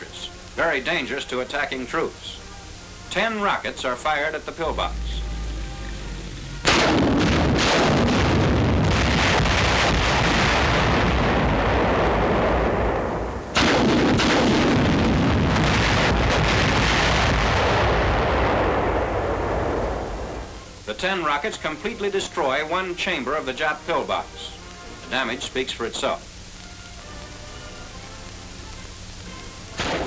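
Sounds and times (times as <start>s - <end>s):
rocket salvo blasts: 6.6s - 21.0s, 28.6s - 30.0s.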